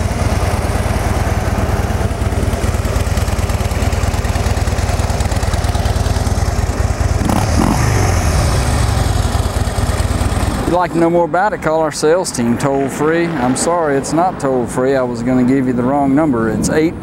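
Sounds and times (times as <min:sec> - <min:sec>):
motorcycle engine idling: 0:00.0 - 0:12.4.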